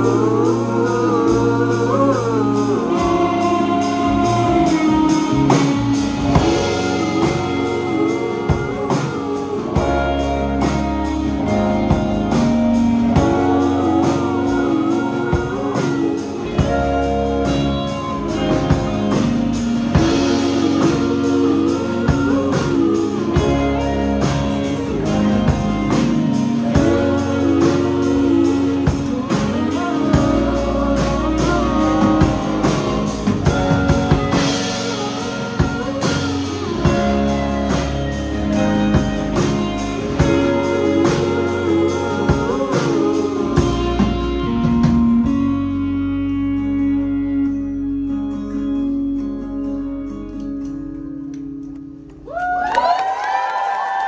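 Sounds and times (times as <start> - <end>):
person singing: 0.0 - 49.2
folk-rock band playing: 0.0 - 54.0.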